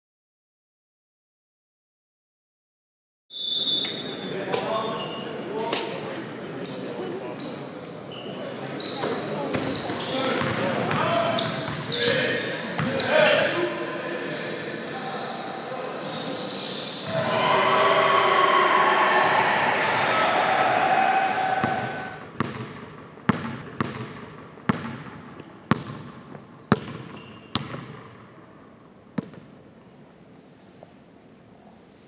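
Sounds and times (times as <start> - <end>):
loud dense gym noise: 3.9 - 22.4
basketball bouncing on gym floor: 22.4 - 28.2, 29.2 - 29.5.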